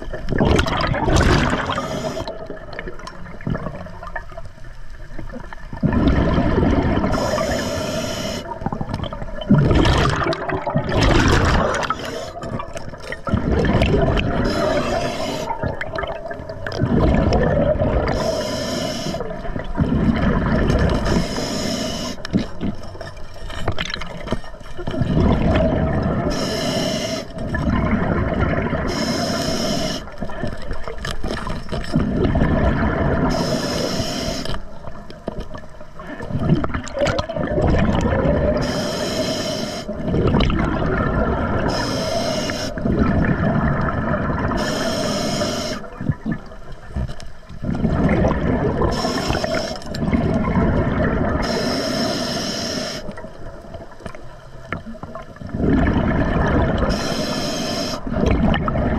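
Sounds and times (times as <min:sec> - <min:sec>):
exhaled bubbles gushing: 0:00.0 - 0:39.0, 0:39.8 - 0:52.0, 0:53.0 - 0:58.9
hissing regulator inhalation: 0:01.4 - 0:02.4, 0:07.1 - 0:08.7, 0:11.4 - 0:12.6, 0:14.4 - 0:15.8, 0:18.1 - 0:19.4, 0:20.9 - 0:22.5, 0:26.3 - 0:27.4, 0:28.8 - 0:30.2, 0:33.2 - 0:34.6, 0:38.6 - 0:40.0, 0:41.6 - 0:42.9, 0:44.5 - 0:45.9, 0:48.9 - 0:50.0, 0:51.4 - 0:53.2, 0:56.8 - 0:58.2.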